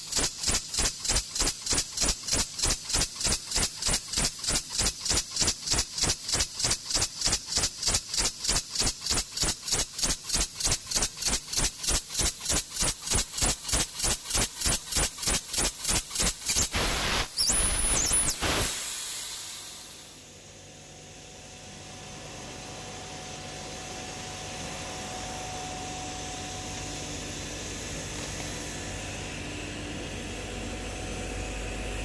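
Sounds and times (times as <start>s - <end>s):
laser cutter pulsing hiss: 0.0s - 20.5s.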